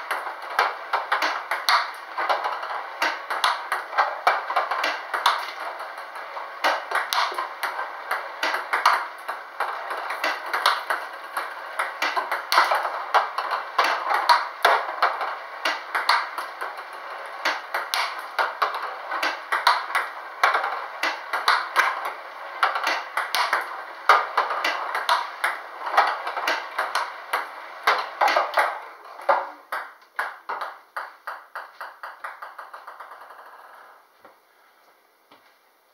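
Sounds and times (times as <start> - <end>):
table tennis ball clicks: 0.1 - 6.0, 6.6 - 16.8, 17.4 - 28.7
ball bouncing to rest: 0.1 - 33.5.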